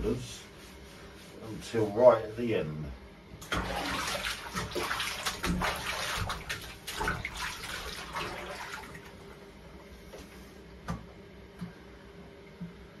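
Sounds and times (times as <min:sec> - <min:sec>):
bathwater splashing and sloshing: 0:03.4 - 0:10.4.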